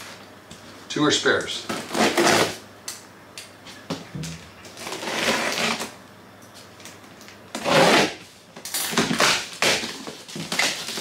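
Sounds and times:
packing tape scraping off cardboard: 0:01.6 - 0:02.6, 0:04.7 - 0:06.0, 0:07.5 - 0:11.0.

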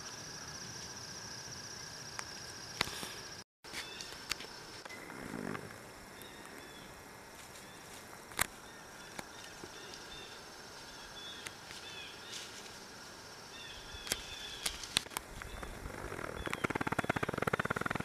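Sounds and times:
small birds chirping: 0:13.5 - 0:18.0
rapid buzzing rattle: 0:15.6 - 0:18.0
sharp clicks: 0:16.2 - 0:18.0.

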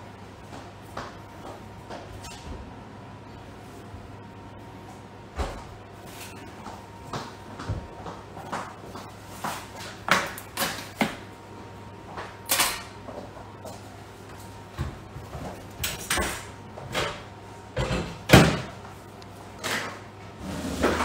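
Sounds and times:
faint steady hum: 0:00.0 - 0:21.0
kitchen items knocking and clattering: 0:17.8 - 0:18.7.

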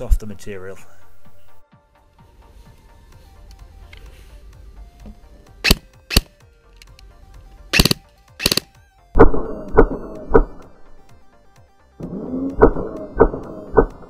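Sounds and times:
background music: 0:00.0 - 0:14.0
sharp cracks of pellet hits: 0:05.6 - 0:06.4, 0:07.7 - 0:08.8.

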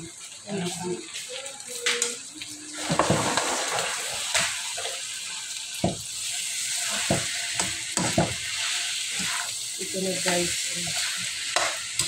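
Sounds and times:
rice sizzling in a pan: 0:00.0 - 0:12.0
metal spatula scraping a pan: 0:02.9 - 0:05.0, 0:06.6 - 0:12.0.

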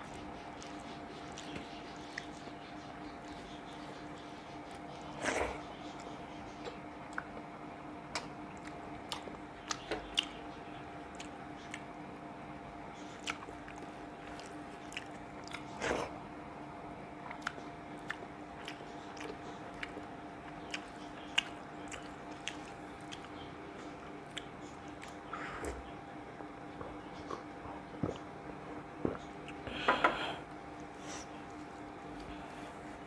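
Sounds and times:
wet chewing: 0:00.0 - 0:02.5, 0:08.1 - 0:10.4, 0:11.1 - 0:11.9, 0:12.9 - 0:16.2, 0:17.2 - 0:25.9
faint steady hum: 0:00.0 - 0:33.0.

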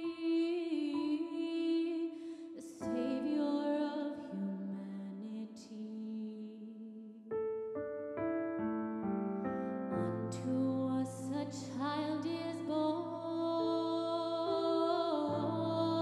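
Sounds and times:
gentle keyboard music: 0:00.0 - 0:05.9, 0:07.3 - 0:16.0.

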